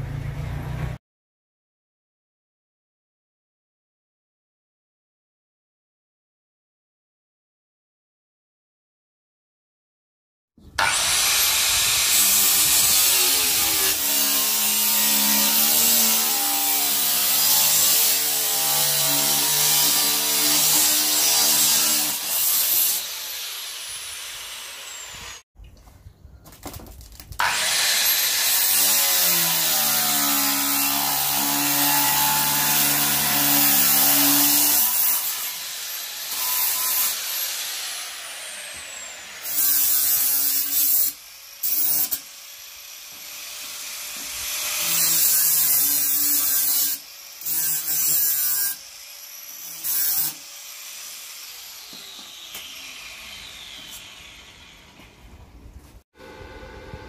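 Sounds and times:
angle grinder cutting steel sheet: 10.8 - 25.4, 27.4 - 55.2.

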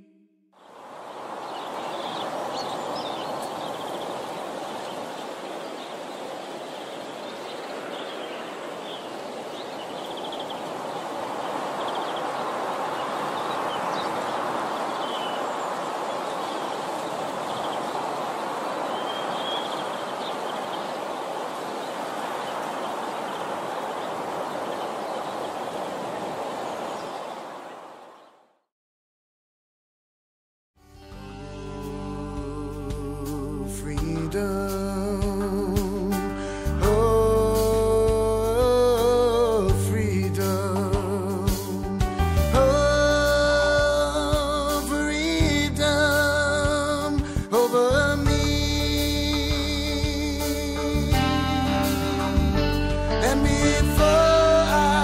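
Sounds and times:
birds chirping: 0.0 - 28.6
steady outdoor noise: 0.6 - 28.2.

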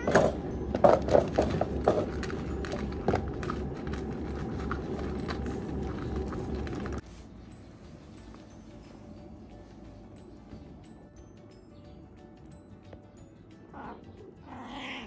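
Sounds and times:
low rumble: 0.2 - 7.0
fur rustling against microphone: 4.0 - 8.9.

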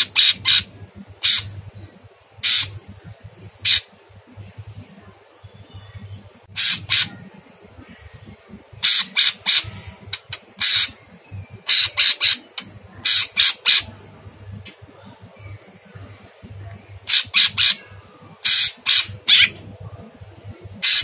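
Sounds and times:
bird giving harsh rasping calls: 0.0 - 1.6, 2.4 - 2.8, 3.6 - 4.0, 6.5 - 7.2, 8.8 - 11.0, 11.6 - 13.9, 17.0 - 19.6, 20.8 - 21.0.

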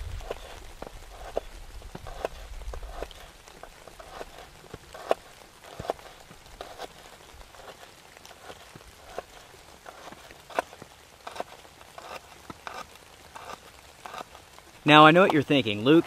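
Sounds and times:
low rumble: 0.0 - 0.8.

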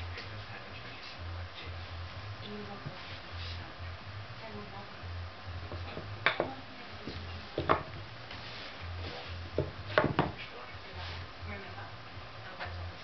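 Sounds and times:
wooden pegs knocking on wood: 5.7 - 6.6, 7.6 - 8.0, 9.6 - 10.4.

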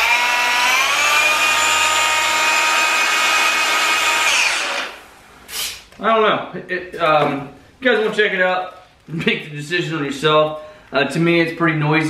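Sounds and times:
orbital polisher motor whine: 0.0 - 5.0.

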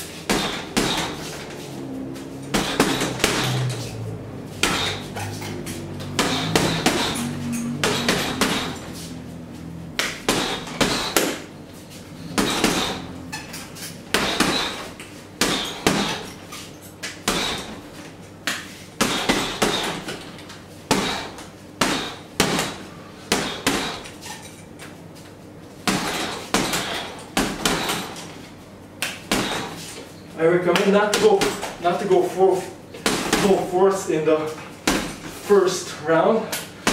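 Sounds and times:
boxing gloves punching heavy bag: 0.0 - 11.5, 12.1 - 16.5, 17.2 - 18.1, 19.0 - 24.2, 25.8 - 28.4, 29.3 - 30.0, 30.6 - 34.0, 34.8 - 35.6.

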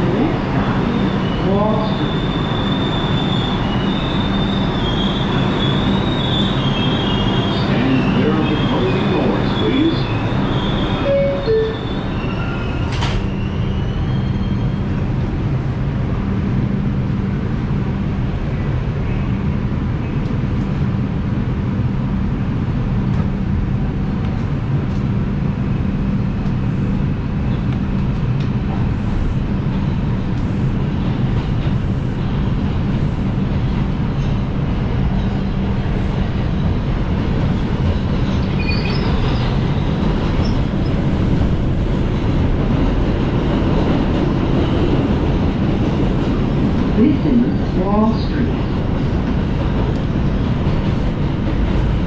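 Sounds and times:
subway train rumble: 0.0 - 52.0
rail joint clicks: 8.7 - 13.5, 27.5 - 28.9, 33.6 - 47.0, 48.0 - 52.0
wheel squeal: 10.1 - 14.8, 38.4 - 39.5.

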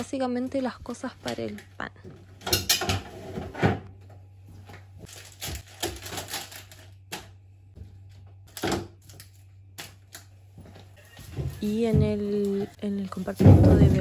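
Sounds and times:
plastic packaging rustling: 5.0 - 7.2
packages knocking on shelves: 11.3 - 14.0.

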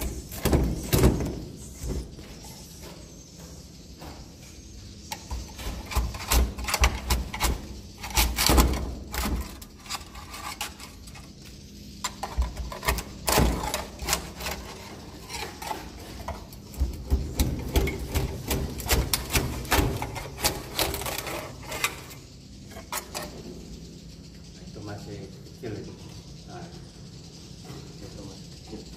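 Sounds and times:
scraper scraping wooden planks: 12.1 - 22.2.

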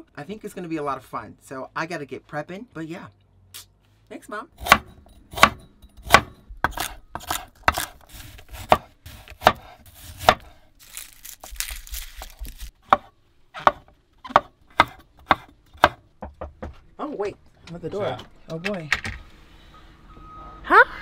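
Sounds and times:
knife chopping on wooden board: 4.6 - 10.6, 12.2 - 16.8
papery rustling of garlic: 10.8 - 12.8.

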